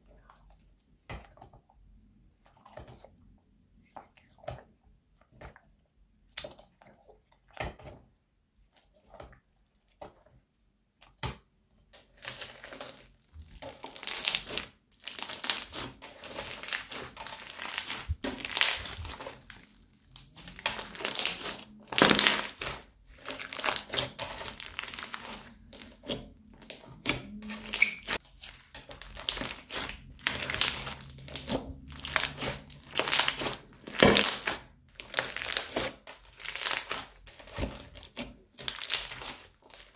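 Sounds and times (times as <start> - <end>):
slime crackling when kneaded: 12.0 - 39.9.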